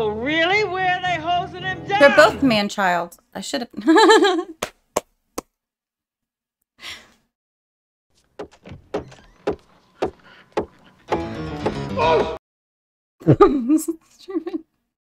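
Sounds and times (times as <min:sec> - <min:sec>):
music: 0:00.0 - 0:02.6, 0:09.6 - 0:12.4
footsteps on hard floor: 0:08.2 - 0:10.9
soft breath: 0:10.1 - 0:11.0.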